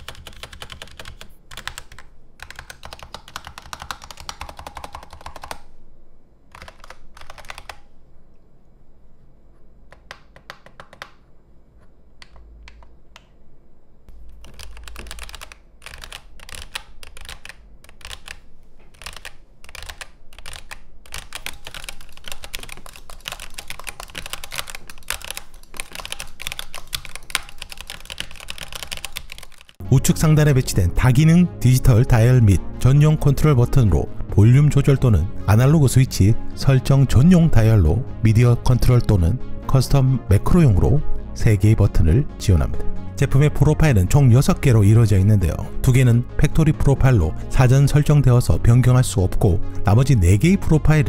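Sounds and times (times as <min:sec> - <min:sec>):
keyboard key clicks: 0:09.9 - 0:11.2, 0:11.8 - 0:13.4, 0:14.1 - 0:29.6.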